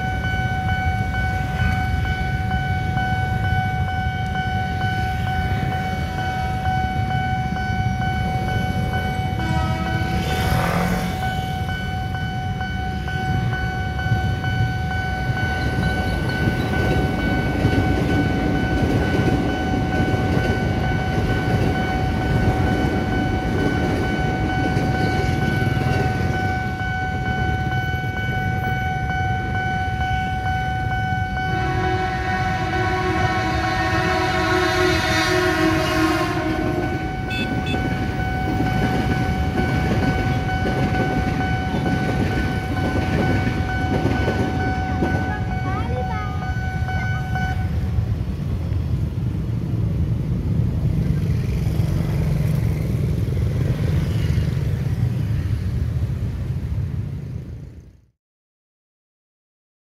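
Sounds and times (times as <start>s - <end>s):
crossing warning tone: 0.0s - 58.0s
train rumbling past: 0.0s - 58.1s
train horn blast: 9.3s - 11.3s, 31.4s - 38.2s.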